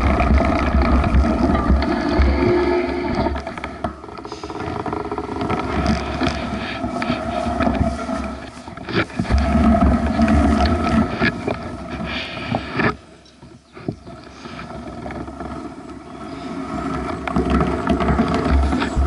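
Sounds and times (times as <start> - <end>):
bike rattles and clicks: 0.0 - 19.0
low tyre rumble: 0.0 - 19.0
wind buffeting microphone: 16.1 - 19.0.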